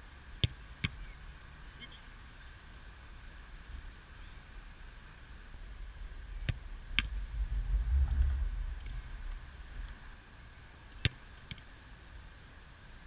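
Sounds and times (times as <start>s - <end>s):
low rumble: 5.6s - 10.2s.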